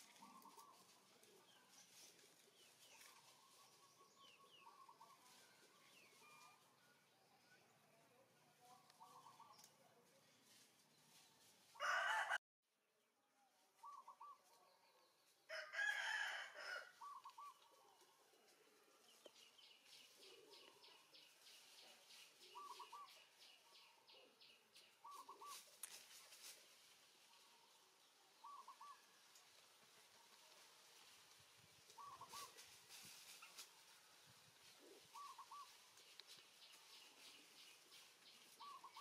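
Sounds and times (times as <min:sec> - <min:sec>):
rooster crowing: 0:11.8 - 0:12.4, 0:15.5 - 0:17.1
faint chirping calls: 0:19.2 - 0:26.5, 0:27.3 - 0:29.6, 0:31.8 - 0:33.6, 0:34.6 - 0:39.0.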